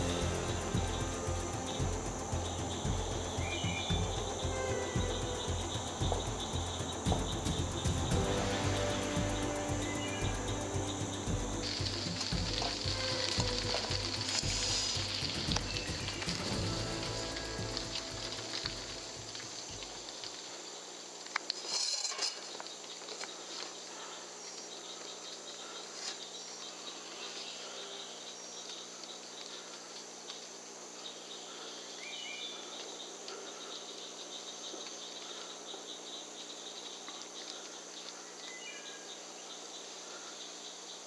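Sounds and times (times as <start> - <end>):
faint rising chirps: 0.0 - 20.2
rustling: 0.0 - 27.9
crickets and insects trilling: 0.0 - 41.0.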